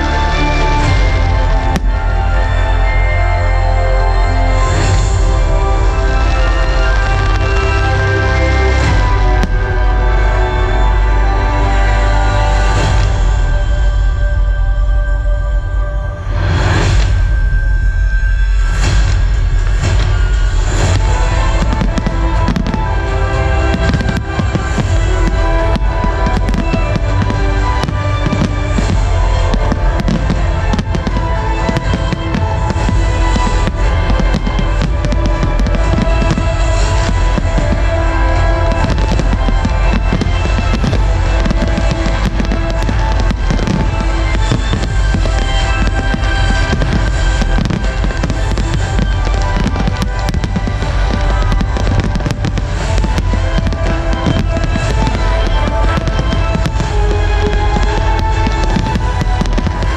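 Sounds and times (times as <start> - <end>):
fireworks crackling: 0.0 - 14.6, 16.3 - 59.9
loud music: 0.0 - 59.9
fireworks booming: 16.3 - 59.9.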